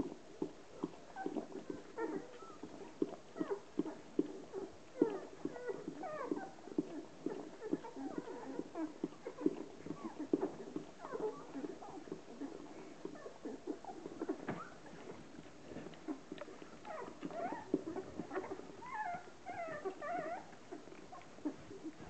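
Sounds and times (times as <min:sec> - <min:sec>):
puppies grunting: 0:00.0 - 0:22.0
puppies squeaking: 0:00.8 - 0:22.0.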